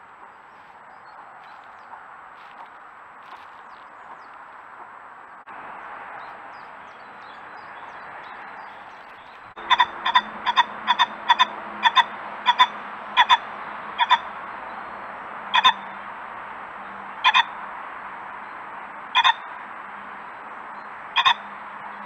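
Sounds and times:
pheasant calling: 0:06.2 - 0:14.8, 0:15.5 - 0:16.0, 0:17.2 - 0:17.6, 0:19.1 - 0:19.6, 0:20.8 - 0:21.5.

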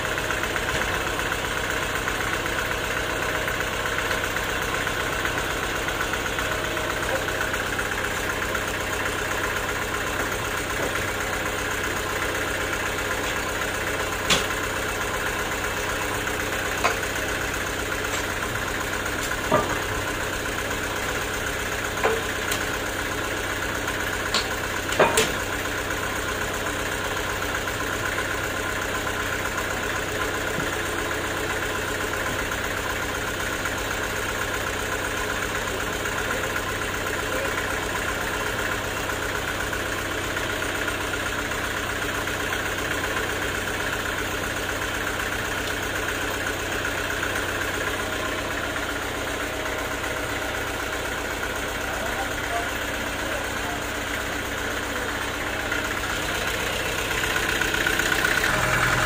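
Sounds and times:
sawmill engine running: 0:00.0 - 0:59.0
sharp knocks of log: 0:14.2 - 0:14.6.

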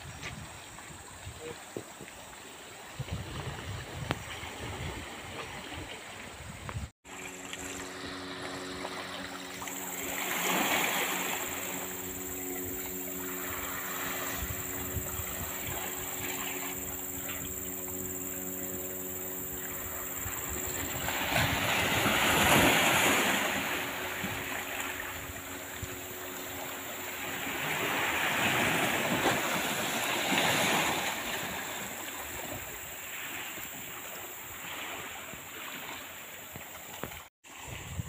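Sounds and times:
sea waves washing against shore: 0:01.4 - 0:38.0.

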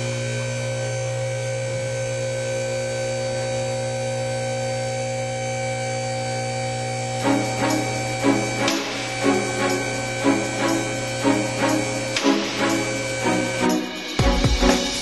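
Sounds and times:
electrical hum: 0:00.0 - 0:15.0
guitar music: 0:07.2 - 0:15.0.

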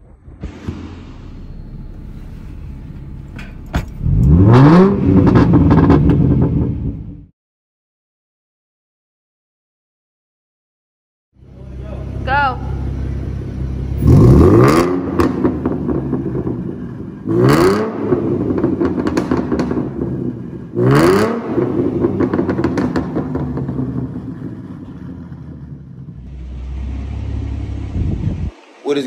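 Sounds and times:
engine idling: 0:00.0 - 0:04.5, 0:11.4 - 0:14.1
exhaust crackling pops: 0:00.0 - 0:07.2, 0:14.9 - 0:17.0, 0:18.2 - 0:20.6, 0:21.6 - 0:26.2
car engine revving: 0:00.0 - 0:07.3, 0:11.4 - 0:29.0.

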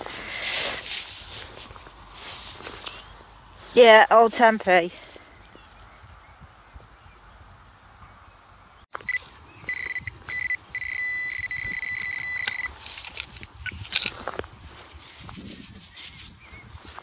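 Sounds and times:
soil scraped and brushed: 0:00.0 - 0:05.1, 0:12.6 - 0:17.0
pinpointer probe beeping: 0:08.9 - 0:12.8.

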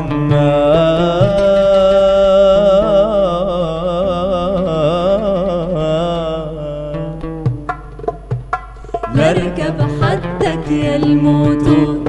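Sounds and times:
person singing wordless vocal line: 0:00.0 - 0:07.5, 0:09.0 - 0:12.0
goblet drum strokes: 0:07.4 - 0:12.0.

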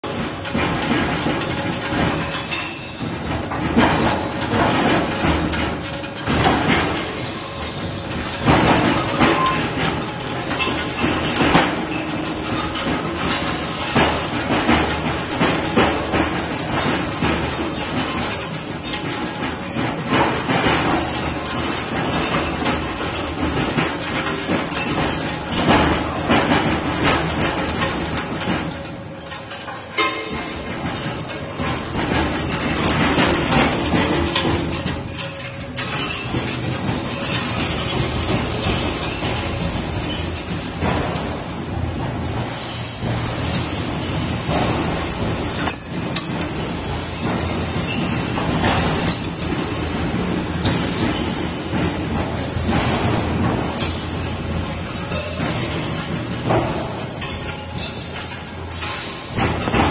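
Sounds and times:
loud metal clanks: 0:00.0 - 0:59.9.

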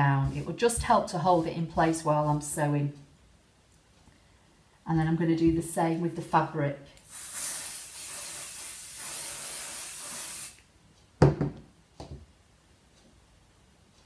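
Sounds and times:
aerosol can spraying: 0:07.1 - 0:10.6
can knocking on table: 0:11.2 - 0:12.2.

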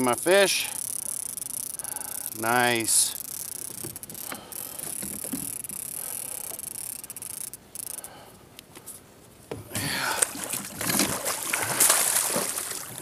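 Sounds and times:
fishing reel winding: 0:00.0 - 0:08.2
water splashing and knocking: 0:10.2 - 0:13.0.

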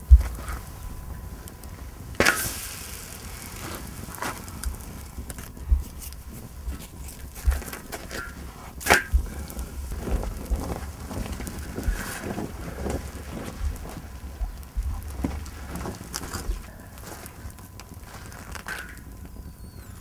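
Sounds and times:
wood fire crackling: 0:00.0 - 0:20.0.

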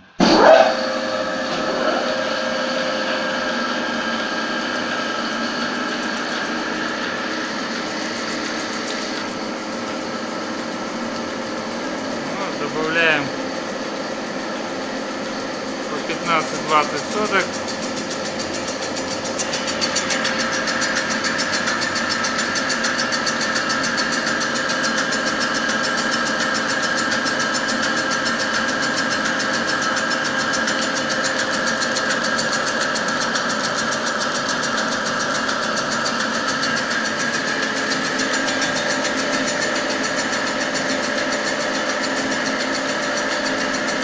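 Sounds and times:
machine whine: 0:00.0 - 0:44.0
grinding wheel on metal: 0:11.8 - 0:13.3, 0:15.9 - 0:26.1, 0:31.1 - 0:44.0.

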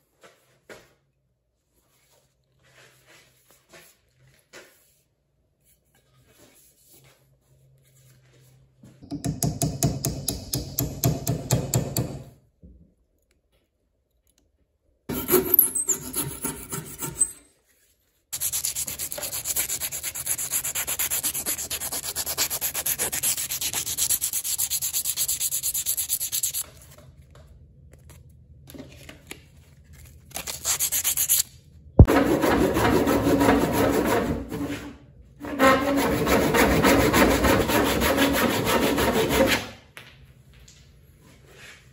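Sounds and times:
sandpaper sanding wood: 0:18.4 - 0:26.6, 0:30.6 - 0:31.4, 0:32.0 - 0:34.7, 0:35.5 - 0:39.6
handsaw cutting wood: 0:32.0 - 0:34.7, 0:35.4 - 0:39.7.

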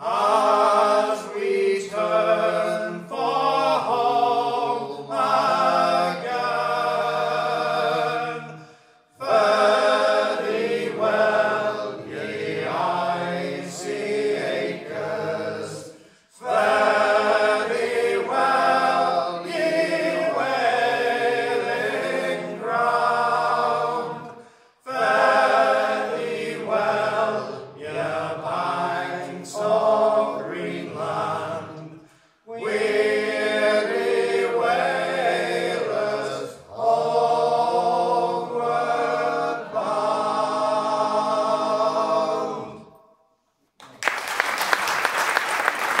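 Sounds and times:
men singing in harmony: 0:00.0 - 0:08.6, 0:09.2 - 0:42.9
audience applauding: 0:43.8 - 0:46.0.

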